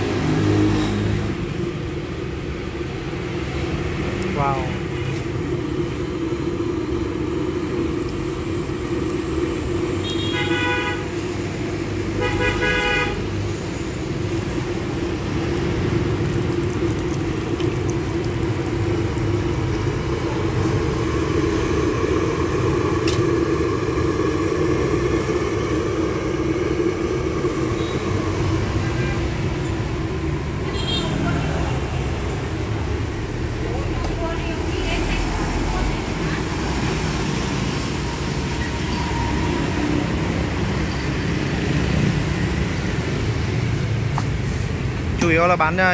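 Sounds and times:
dough deep-frying in oil: 0.0s - 45.4s
roadside traffic: 0.0s - 45.9s
vehicle horn toots: 10.0s - 11.2s, 12.2s - 13.3s, 30.6s - 31.4s.

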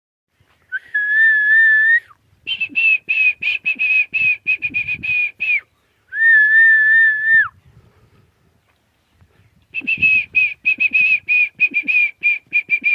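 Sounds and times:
person whistling: 0.7s - 7.5s, 9.8s - 12.9s.

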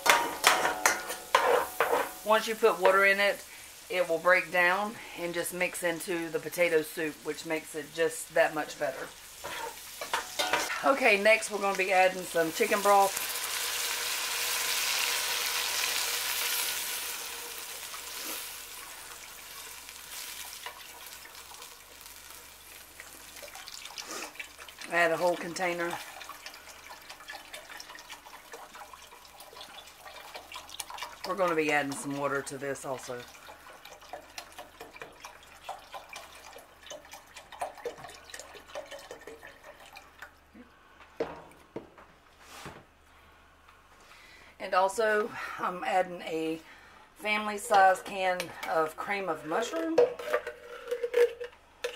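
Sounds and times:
broth sizzling in hot pot: 0.0s - 40.0s.

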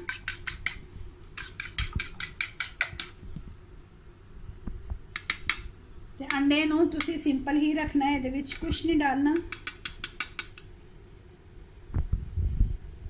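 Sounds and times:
fork clicking against bowl: 0.0s - 0.8s, 1.4s - 3.2s, 5.2s - 7.2s, 9.3s - 10.7s.

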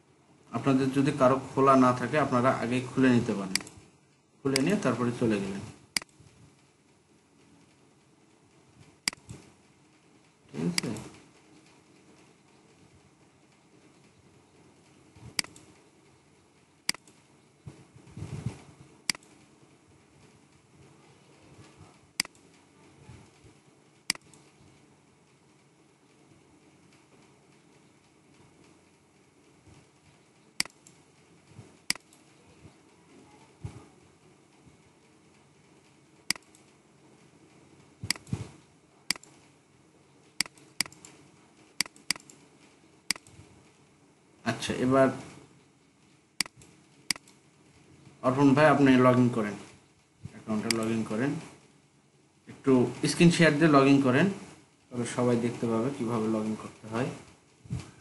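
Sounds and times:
faint room hiss: 0.0s - 58.0s
computer mouse clicks: 3.5s - 3.8s, 6.0s - 6.2s, 9.0s - 9.5s, 15.3s - 15.8s, 16.9s - 17.2s, 19.1s - 19.4s, 22.2s - 22.6s, 24.1s - 24.6s, 30.6s - 31.0s, 31.9s - 32.3s, 36.3s - 36.8s, 38.0s - 38.4s, 39.1s - 39.5s, 40.4s - 41.2s, 41.8s - 42.5s, 43.1s - 43.4s, 46.4s - 47.4s, 50.6s - 50.9s.

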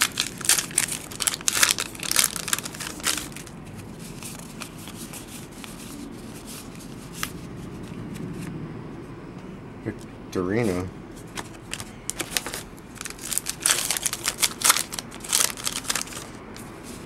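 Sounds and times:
foil wrapper tearing: 0.0s - 3.5s, 11.7s - 16.4s
cards being handled: 0.0s - 8.6s, 10.6s - 17.0s.

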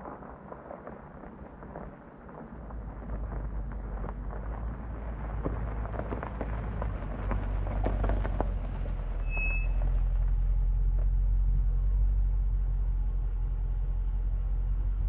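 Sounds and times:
tyres crunching on gravel: 0.0s - 11.4s
car engine rumble: 0.0s - 15.0s
brief high squeak: 9.2s - 9.8s.

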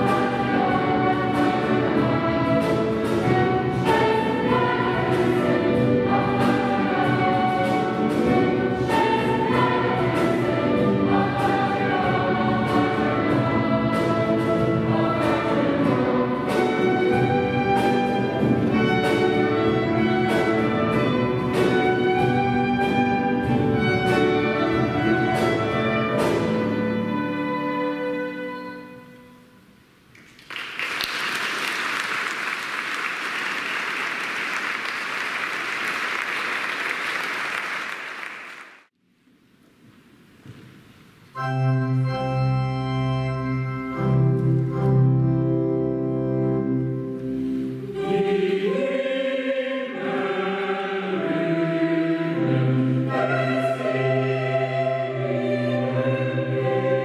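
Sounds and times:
mixed choir singing: 0.0s - 27.7s, 47.6s - 57.0s
audience applause: 30.2s - 38.9s
organ chords with deep bass: 41.4s - 47.3s.

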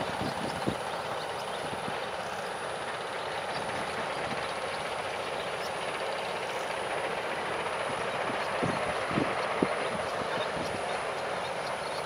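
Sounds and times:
high steady whine: 0.0s - 12.0s
road traffic hiss: 0.0s - 12.0s.

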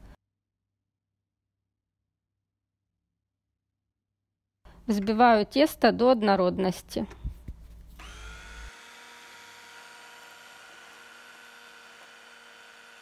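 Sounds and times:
electric chopper motor whining: 8.0s - 13.0s.

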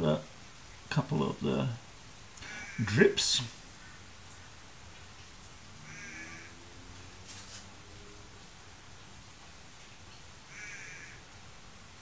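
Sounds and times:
faint crow caw: 2.4s - 3.0s, 3.7s - 4.6s, 5.8s - 7.0s, 10.5s - 11.3s.

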